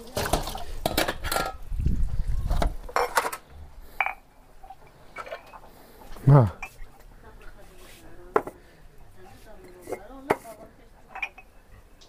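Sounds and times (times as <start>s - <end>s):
dishes knocking together: 8.3s - 8.6s.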